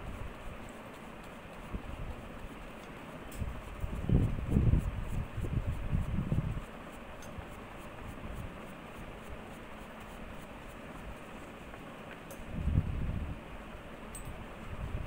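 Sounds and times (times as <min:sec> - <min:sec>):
paintbrush scratching on paper: 0:00.0 - 0:11.6.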